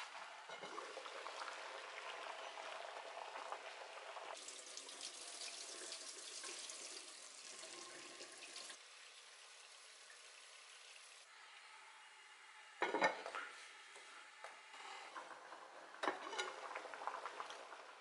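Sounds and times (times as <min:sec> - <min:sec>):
pot of beans bubbling: 0:00.0 - 0:07.0, 0:14.8 - 0:18.0
tap water running into pot: 0:00.0 - 0:11.2.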